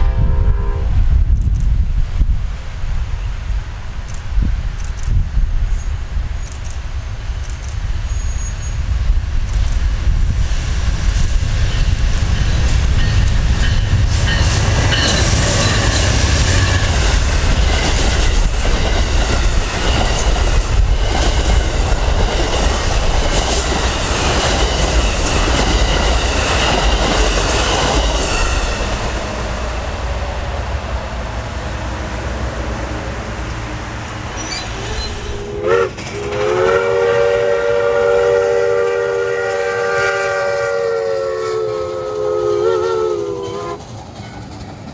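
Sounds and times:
train engine and wheel rumble: 0:00.0 - 0:44.9
wheels squealing on curve: 0:34.3 - 0:35.6
wheels clicking over rail joints: 0:43.8 - 0:44.9.

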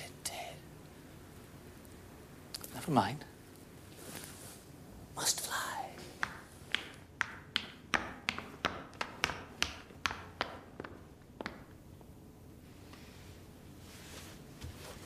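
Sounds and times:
footsteps on tiled floor: 0:13.9 - 0:15.0.

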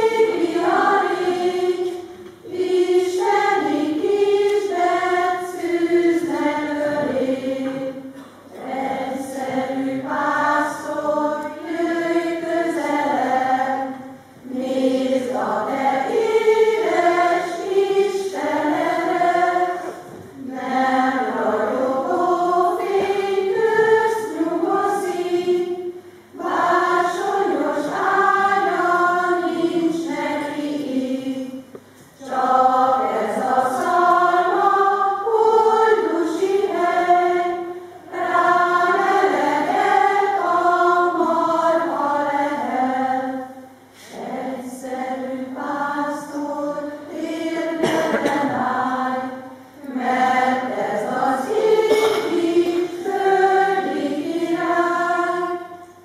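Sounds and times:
choir singing: 0:00.0 - 0:56.0.

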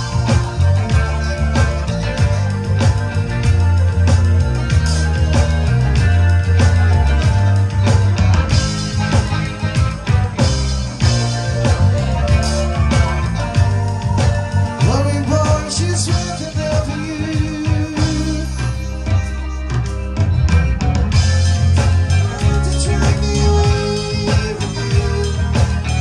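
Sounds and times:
drum beat: 0:00.0 - 0:18.4, 0:19.9 - 0:26.0
electric guitar: 0:00.0 - 0:26.0
heavy bass line: 0:00.0 - 0:26.0.

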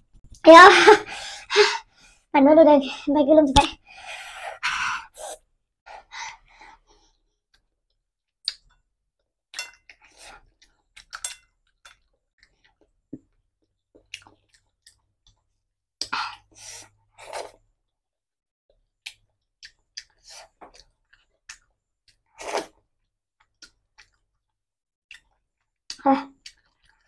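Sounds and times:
person chewing with wet smacks: 0:08.4 - 0:08.8, 0:09.8 - 0:16.1, 0:18.8 - 0:22.3, 0:22.9 - 0:27.0.

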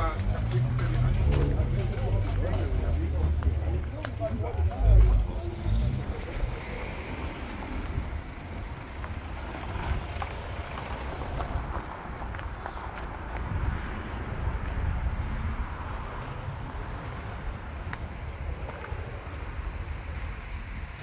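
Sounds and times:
footsteps on gravel: 0:00.0 - 0:06.3, 0:07.2 - 0:15.1, 0:16.1 - 0:21.0
wind on microphone: 0:11.1 - 0:21.0.

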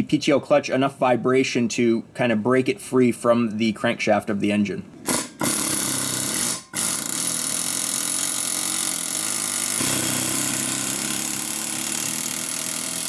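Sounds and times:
air hammer rattling: 0:05.0 - 0:13.0.

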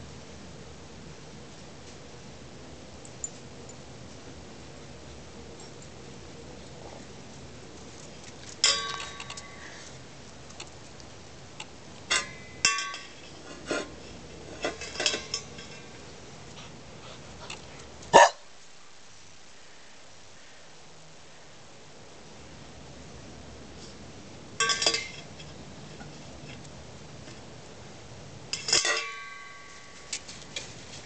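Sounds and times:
metal dog bowl clanking on concrete: 0:08.6 - 0:09.6, 0:12.1 - 0:13.9, 0:14.6 - 0:16.0, 0:24.6 - 0:25.3, 0:28.6 - 0:29.6.

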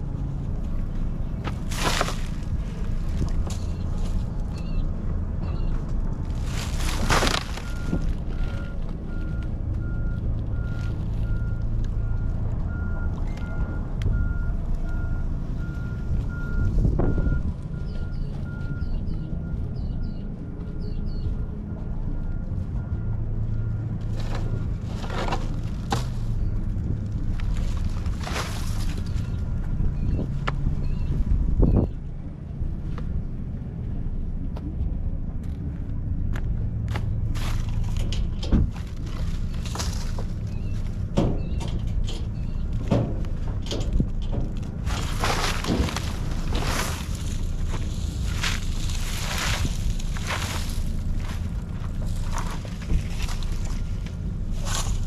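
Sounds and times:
heavy vehicle engine running: 0:00.0 - 0:55.0
reversing alarm beeping: 0:07.6 - 0:24.8.

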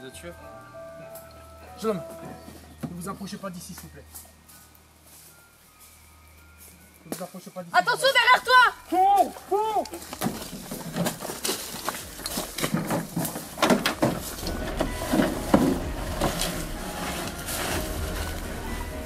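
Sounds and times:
rustling in dry leaves: 0:01.8 - 0:19.0
thuds in dry leaves: 0:10.0 - 0:19.0
low steady rumble: 0:14.2 - 0:19.0.

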